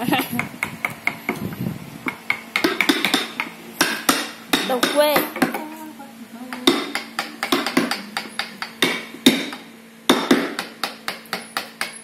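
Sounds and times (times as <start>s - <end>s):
mallet striking chisel into wood: 2.0s - 5.6s, 6.6s - 12.0s.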